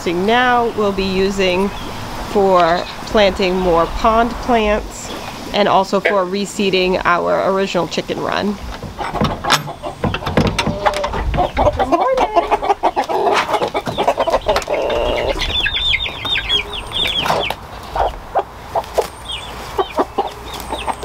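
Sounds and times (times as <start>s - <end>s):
chickens clucking and squawking: 0.0s - 21.0s
latch clicking: 8.8s - 11.6s.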